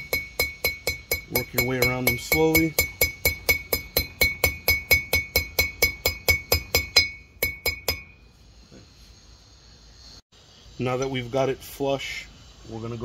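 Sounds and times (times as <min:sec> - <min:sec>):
hammer tapping metal: 0:00.0 - 0:08.2.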